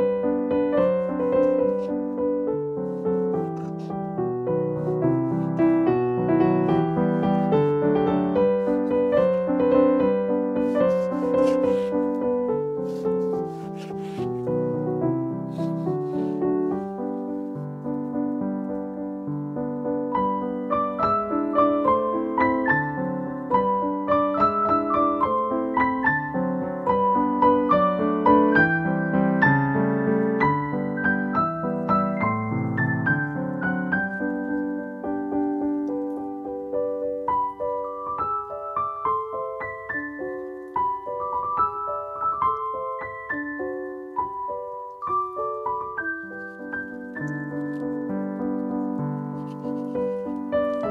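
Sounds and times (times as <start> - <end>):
background piano music: 0.0 - 50.9.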